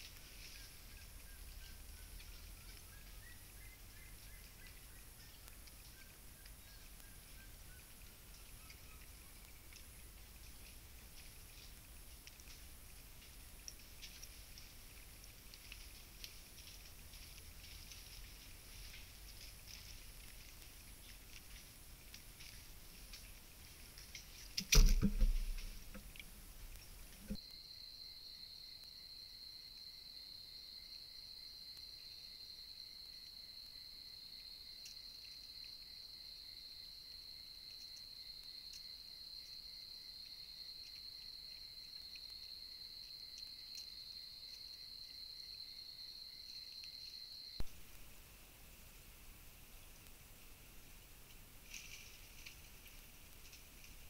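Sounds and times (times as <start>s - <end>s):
rustling: 0.0s - 27.4s, 46.4s - 54.0s
high-pitched insect trill: 26.8s - 47.6s.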